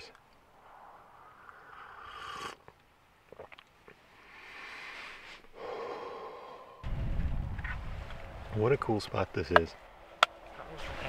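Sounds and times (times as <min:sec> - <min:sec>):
person slurping coffee: 0:01.3 - 0:03.6
long breathy exhale: 0:04.2 - 0:06.9.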